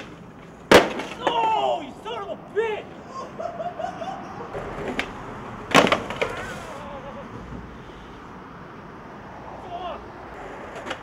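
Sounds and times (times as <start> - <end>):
person calling: 6.0 - 7.5.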